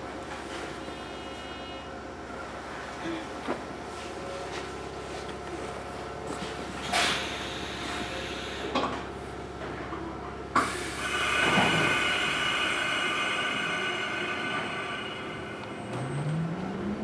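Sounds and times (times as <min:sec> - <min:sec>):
train pulling away: 0:06.8 - 0:09.0, 0:10.5 - 0:17.0
train equipment high-pitched whine: 0:10.6 - 0:17.0.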